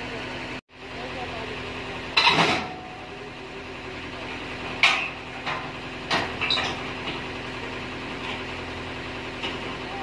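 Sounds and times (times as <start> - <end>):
harvester engine idling: 0.0 - 10.0
sharp metal clanks: 2.2 - 3.0.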